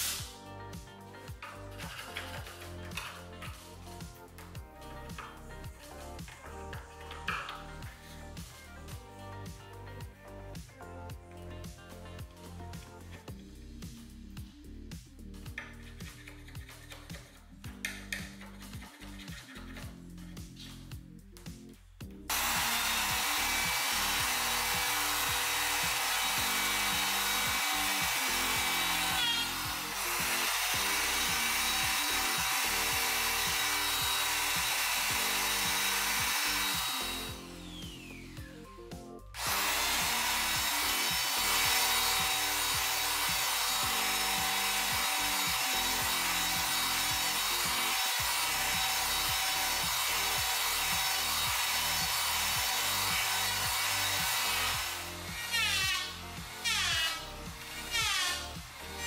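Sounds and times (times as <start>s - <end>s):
electric planer shaving wood: 22.3s - 38.6s, 39.4s - 59.0s.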